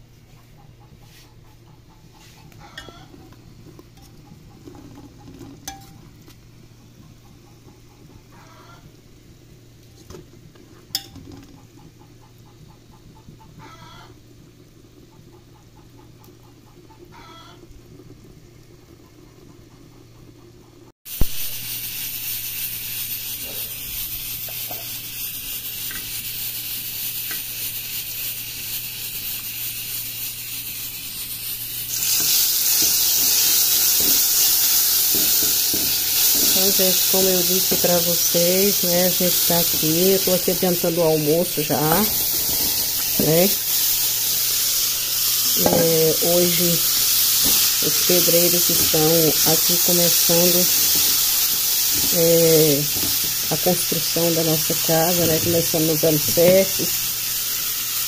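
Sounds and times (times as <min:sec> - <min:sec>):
chickens clucking: 0:00.3 - 0:03.3, 0:04.0 - 0:05.6, 0:06.8 - 0:08.9, 0:11.4 - 0:14.1, 0:15.0 - 0:17.6
hot fat sizzling in a pot: 0:01.0 - 0:19.7, 0:21.0 - 0:58.0.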